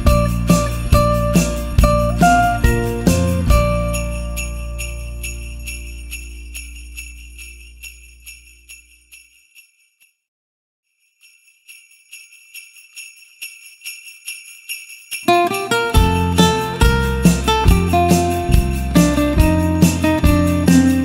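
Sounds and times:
jingle bells shaken: 0.0s - 10.2s, 10.9s - 21.0s.

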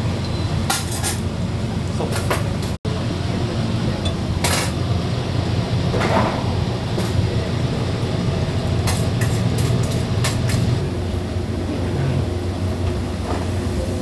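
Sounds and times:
low mechanical hum: 0.0s - 14.0s.

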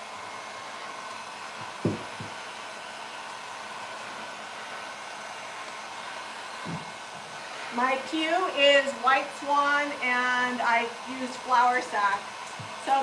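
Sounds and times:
heat gun fan hiss: 0.0s - 13.0s
sharp knock: 1.8s - 2.4s.

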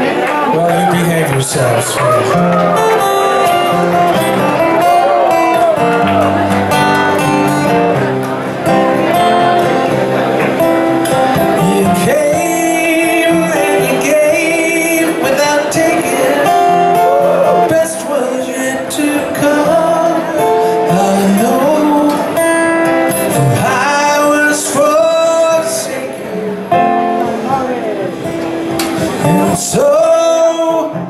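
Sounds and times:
acoustic guitar strumming: 0.0s - 31.0s
man singing: 11.3s - 28.3s, 29.0s - 31.0s.

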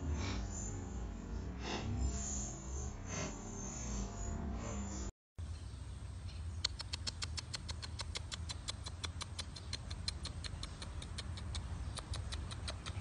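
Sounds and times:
low steady rumble: 0.0s - 6.8s
puppy paws pattering on paving: 6.4s - 13.0s.

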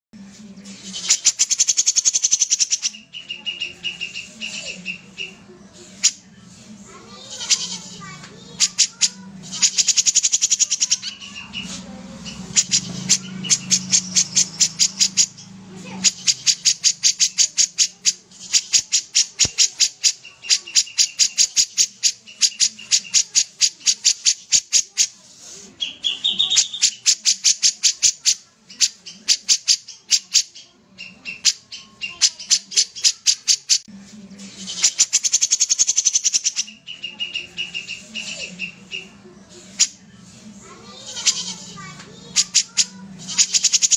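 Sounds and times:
bird singing high sharp notes: 0.8s - 5.4s.

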